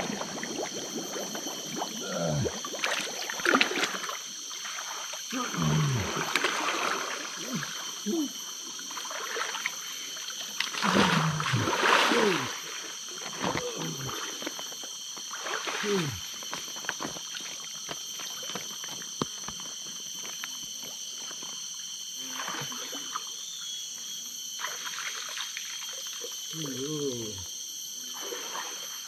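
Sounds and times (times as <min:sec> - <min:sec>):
water splashing: 0:00.0 - 0:07.9, 0:08.7 - 0:09.8, 0:10.5 - 0:14.5.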